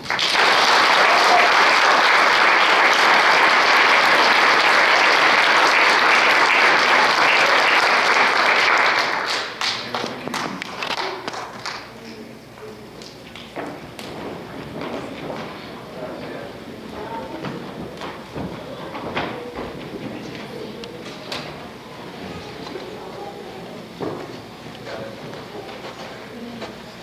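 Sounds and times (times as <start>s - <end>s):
audience applauding: 0.0s - 11.9s.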